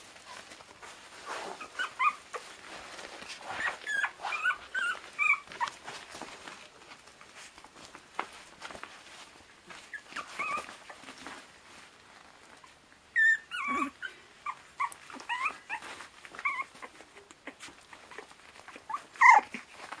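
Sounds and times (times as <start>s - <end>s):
puppies scuffling: 0.0s - 20.0s
puppies yipping and whimpering: 0.2s - 6.1s, 9.7s - 11.3s, 12.6s - 20.0s.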